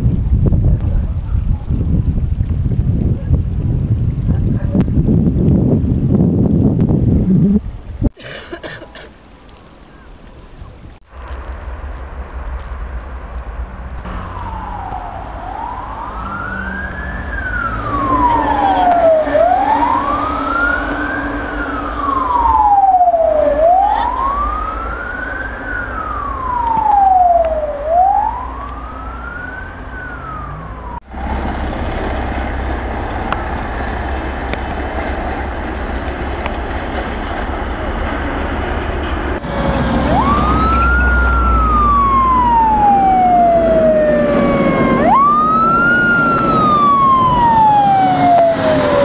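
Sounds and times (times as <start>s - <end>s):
steady low rumble: 0.0s - 8.2s, 9.2s - 49.0s
siren wailing: 14.0s - 31.6s, 39.4s - 49.0s.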